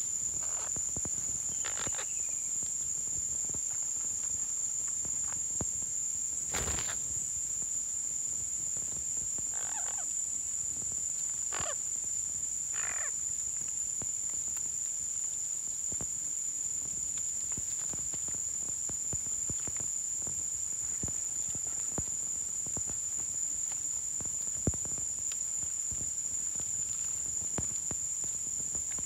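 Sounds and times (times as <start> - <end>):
insect drone: 0.0 - 29.0
parrots squawking: 9.6 - 10.1, 11.5 - 11.8.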